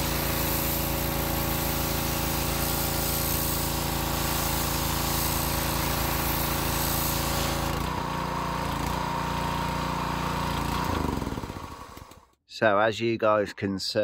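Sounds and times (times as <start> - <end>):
water jet hissing: 0.0 - 7.8
pressure washer engine running: 0.0 - 12.2.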